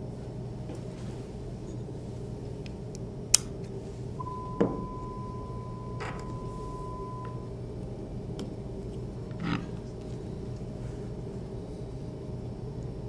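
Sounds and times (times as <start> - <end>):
low steady hum: 0.0 - 13.0
steady pure reference tone: 4.1 - 7.9.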